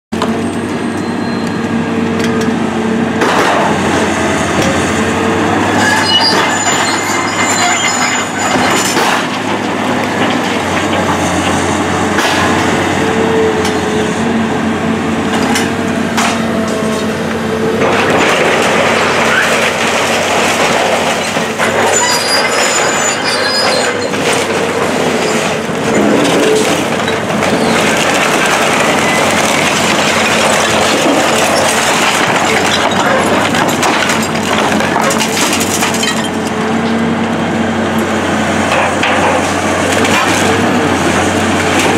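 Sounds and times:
excavator diesel engine running: 0.1 - 41.9
debris crashing and clattering: 5.7 - 12.8, 17.8 - 37.0, 38.6 - 41.9.

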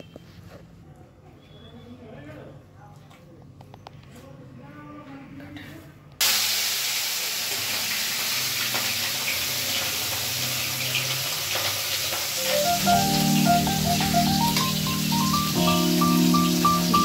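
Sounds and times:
fish sizzling in hot oil: 6.2 - 17.0
music with rising run of notes: 12.4 - 17.0.

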